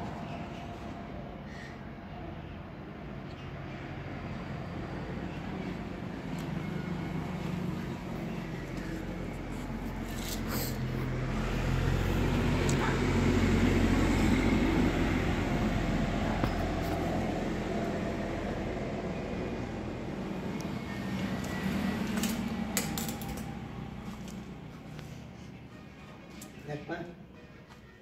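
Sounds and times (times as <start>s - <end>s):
engine rumbling: 0.0s - 26.7s.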